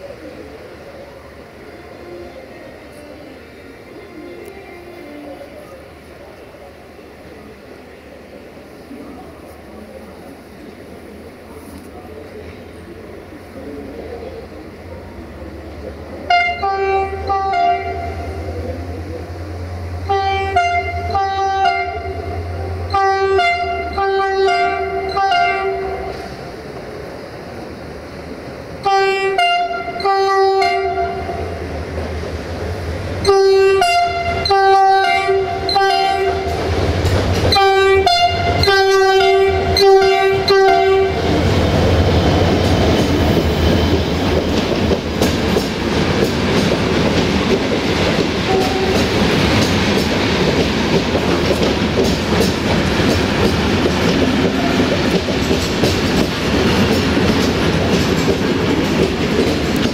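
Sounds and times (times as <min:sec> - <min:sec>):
locomotive air horn blasts: 0:16.3 - 0:18.3, 0:20.1 - 0:26.3, 0:28.8 - 0:31.4, 0:33.2 - 0:36.6, 0:37.5 - 0:41.2, 0:48.5 - 0:49.1
train wheels clacking over rail joints: 0:33.8 - 0:59.9.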